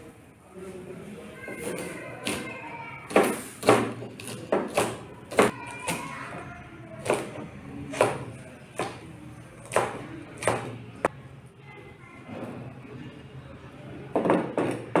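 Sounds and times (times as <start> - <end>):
knife chopping on cutting board: 3.1 - 6.0, 7.9 - 9.0.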